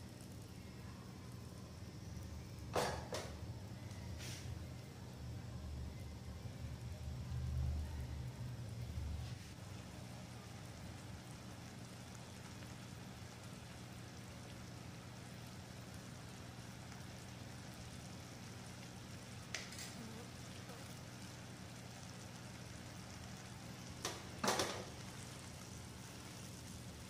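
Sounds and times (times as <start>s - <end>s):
syrup bubbling: 9.5s - 27.0s.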